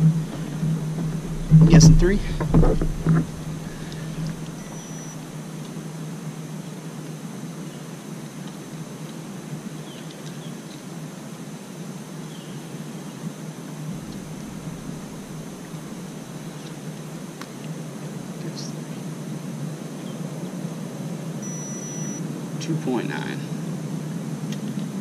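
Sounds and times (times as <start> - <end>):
constant low hum: 0.0 - 25.0
steady hiss: 0.0 - 25.0
faint short high chirps: 4.6 - 5.2, 21.4 - 22.2.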